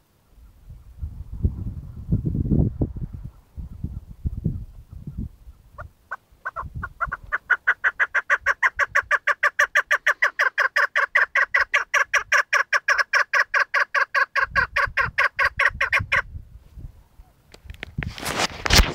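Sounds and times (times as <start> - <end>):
partridge clucking call: 5.8 - 16.2.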